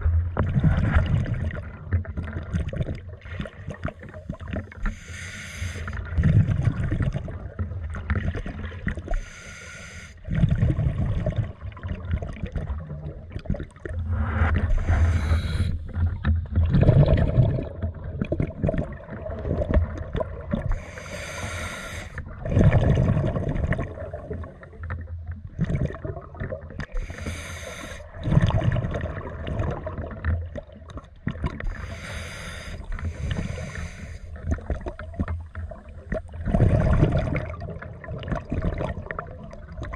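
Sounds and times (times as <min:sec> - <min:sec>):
exhaled air bubbling: 0:00.0 - 0:39.9
regulator hiss on inhale: 0:04.8 - 0:06.0, 0:09.1 - 0:10.2, 0:14.7 - 0:16.0, 0:20.7 - 0:22.2, 0:27.0 - 0:28.1, 0:31.7 - 0:34.4.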